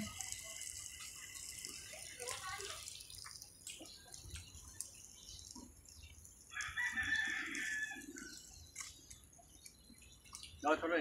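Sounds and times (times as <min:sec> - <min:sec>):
rooster crowing: 0:06.5 - 0:08.3.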